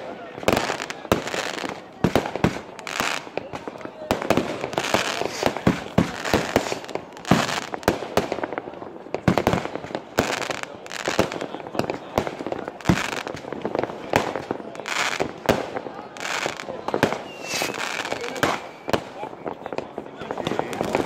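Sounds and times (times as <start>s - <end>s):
fireworks banging and crackling: 0.0s - 21.0s
fireworks hissing: 0.5s - 8.6s, 12.3s - 21.0s.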